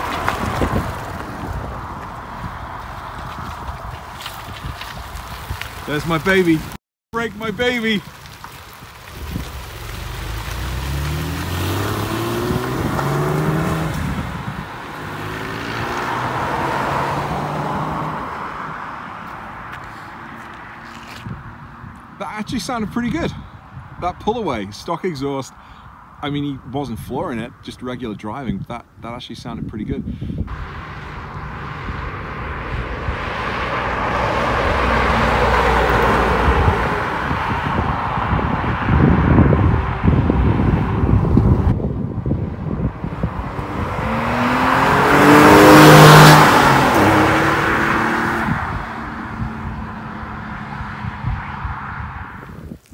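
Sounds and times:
car engine accelerating: 8.8 - 20.5, 30.5 - 41.8, 42.6 - 52.0
car engine driving past: 9.4 - 21.2.

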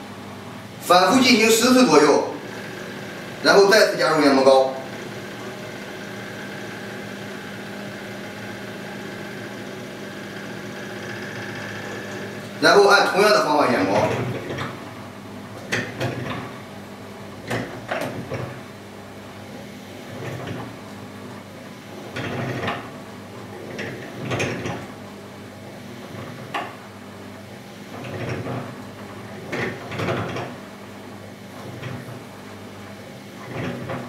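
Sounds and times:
drill motor running: 2.0 - 14.4.

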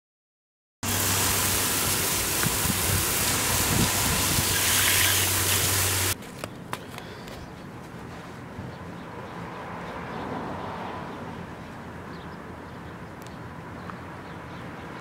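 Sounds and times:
hose water spraying on wheel: 0.8 - 6.2.

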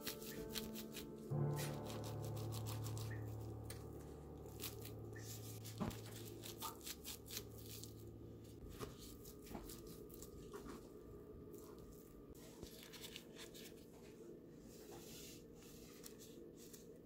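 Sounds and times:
low piano note: 0.0 - 8.6
plastic crinkling: 4.5 - 10.8, 11.6 - 13.9.

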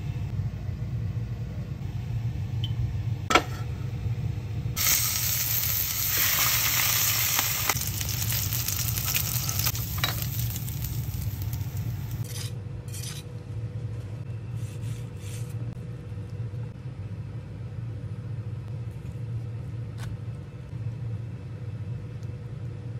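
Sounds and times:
steady low hum: 0.0 - 22.9
fish sizzling in a frying pan: 4.8 - 12.2.

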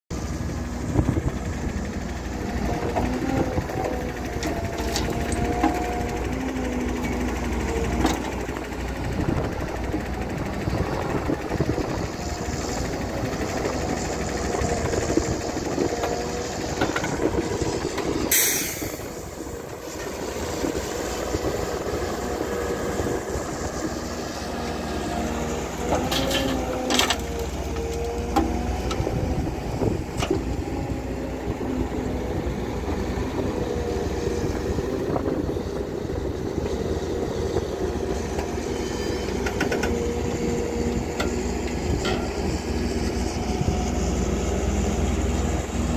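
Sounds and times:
diesel engine under load: 0.1 - 45.9
hydraulic whine: 0.2 - 45.9
short burst of hiss: 18.3 - 19.2.

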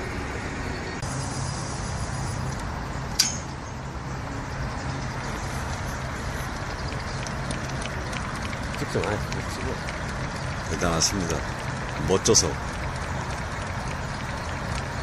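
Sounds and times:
traffic noise: 0.0 - 15.0
sharp click with high ring: 3.2 - 3.6.

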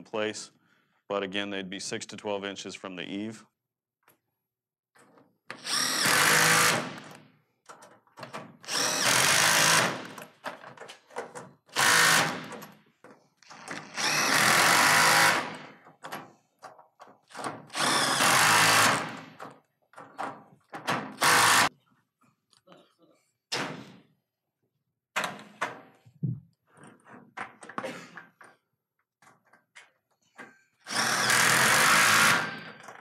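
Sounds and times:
cordless power driver: 5.5 - 7.2, 8.7 - 10.4, 13.4 - 15.6.

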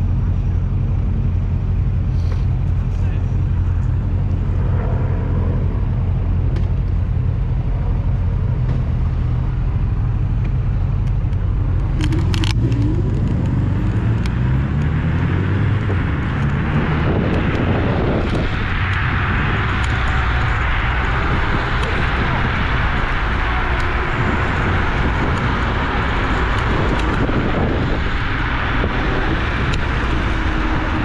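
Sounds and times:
electric scooter rumble: 0.0 - 31.0
street traffic: 0.0 - 31.0
wind rush on microphone: 11.0 - 31.0
rising motor whine: 11.6 - 31.0.

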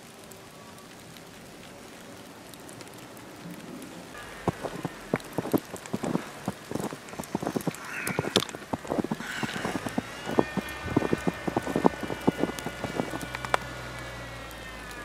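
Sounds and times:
faint steady hiss: 0.0 - 15.0
footsteps crunching in snow: 4.4 - 15.0.

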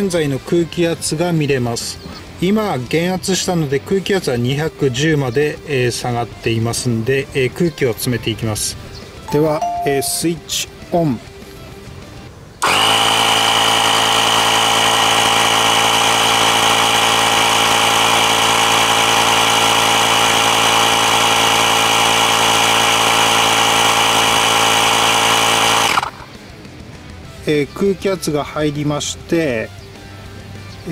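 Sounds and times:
tyre inflator compressor running: 12.6 - 26.4.

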